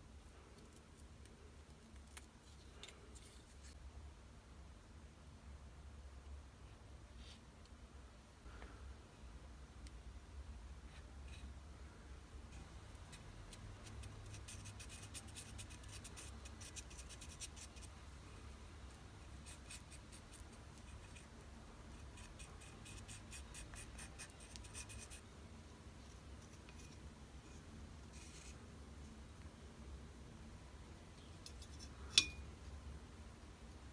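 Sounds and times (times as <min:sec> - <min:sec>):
low steady hum: 0:00.0 - 0:33.9.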